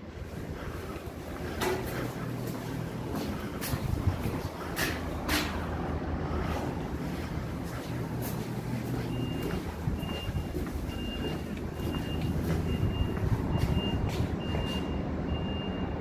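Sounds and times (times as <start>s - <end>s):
low engine rumble: 0.0s - 16.0s
reversing alarm beeps: 9.0s - 16.0s.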